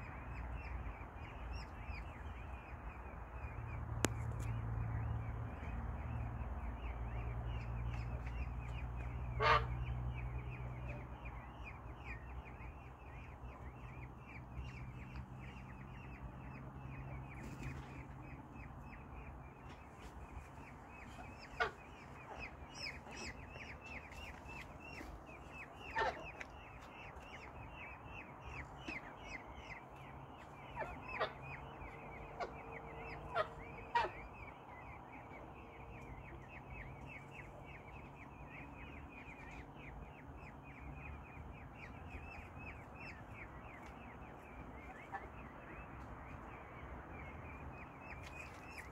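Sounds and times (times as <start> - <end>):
peafowl calling: 0.0 - 48.9.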